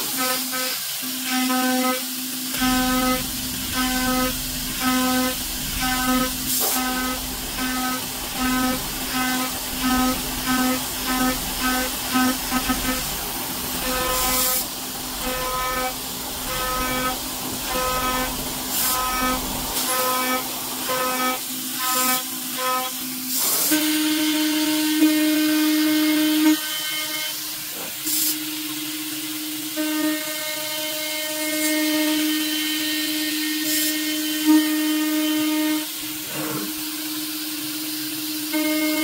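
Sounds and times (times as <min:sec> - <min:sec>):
cnc router milling metal: 0:00.0 - 0:39.0.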